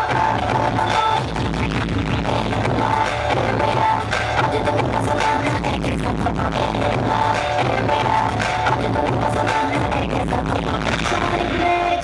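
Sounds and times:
dance music over loudspeakers: 0.0 - 12.0.

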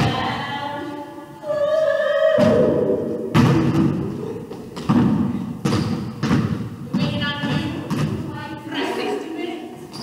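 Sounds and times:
basketball bouncing on hardwood floor: 3.3 - 4.0, 4.8 - 8.3.

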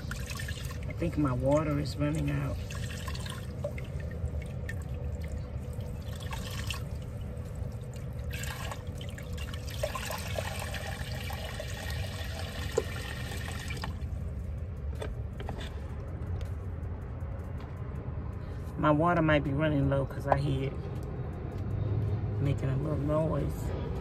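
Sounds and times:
steady low hum: 0.0 - 24.0
faucet running into sink: 8.3 - 14.0.

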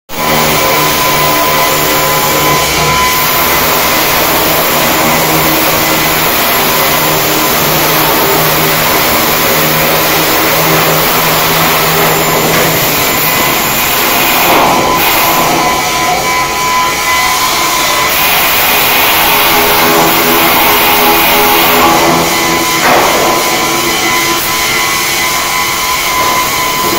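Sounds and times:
loud industrial machinery noise: 0.1 - 26.9.

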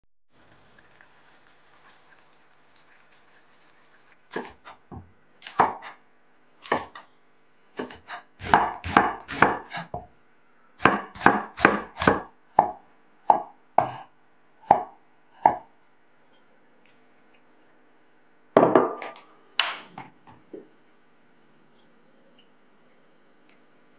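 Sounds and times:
knife chopping on wooden board: 4.3 - 6.0, 6.6 - 7.0, 7.8 - 10.1, 10.8 - 14.1, 14.7 - 15.7.

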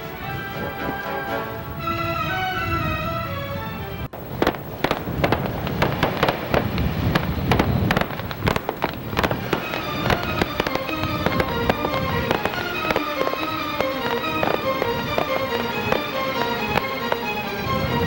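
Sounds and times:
music: 0.0 - 5.0, 9.2 - 18.0
fireworks popping and banging: 4.1 - 18.0.

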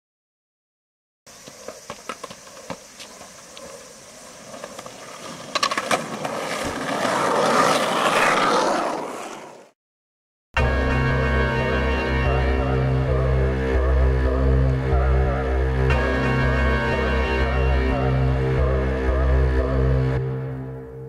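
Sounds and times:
skateboard wheels rolling on asphalt: 1.3 - 9.8.

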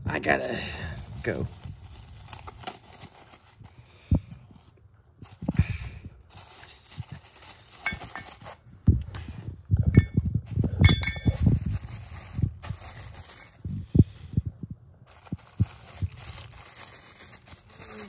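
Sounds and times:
plastic bags rustling: 0.2 - 8.8, 10.2 - 18.0
metal hardware clinking: 10.8 - 11.4.

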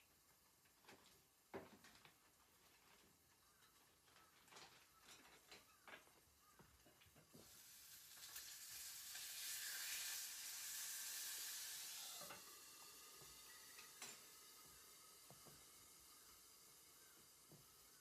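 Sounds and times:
food sizzling in a pan: 7.3 - 18.0.

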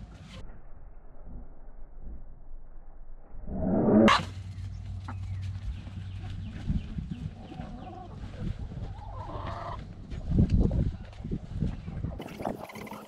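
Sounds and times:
hens clucking: 4.0 - 10.8, 11.8 - 13.0.

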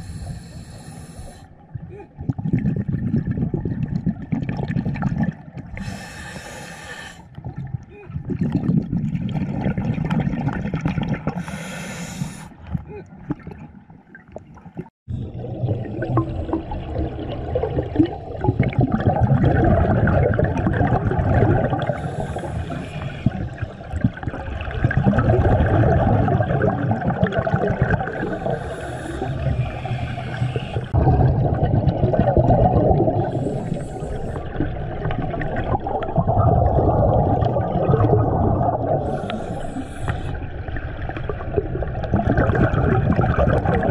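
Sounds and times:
regulator inhale hiss: 0.0 - 1.5, 5.8 - 7.3, 11.4 - 12.6, 22.0 - 23.4, 28.2 - 31.0, 33.2 - 34.5, 39.0 - 40.4.

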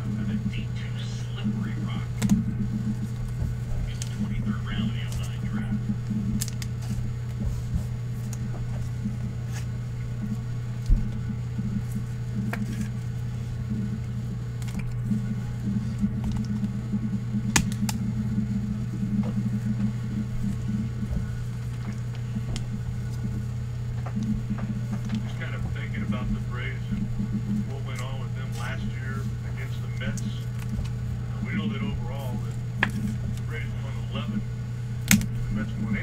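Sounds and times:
low electrical hum: 0.0 - 36.0.

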